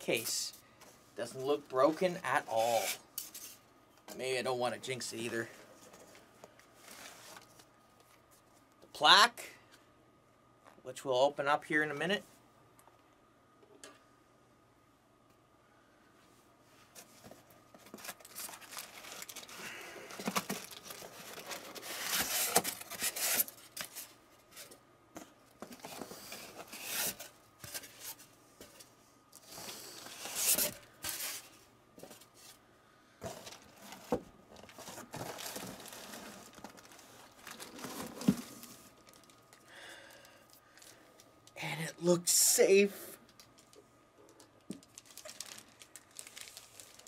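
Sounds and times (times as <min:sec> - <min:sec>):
packing wrap rustling: 0:17.8 - 0:24.2, 0:33.2 - 0:41.0, 0:44.4 - 0:47.0.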